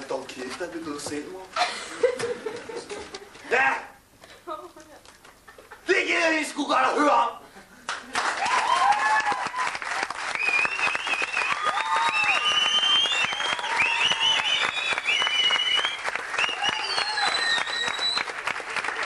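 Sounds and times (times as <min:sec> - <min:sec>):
audience applauding: 0:07.8 - 0:19.0
crowd cheering and whooping: 0:08.1 - 0:19.0.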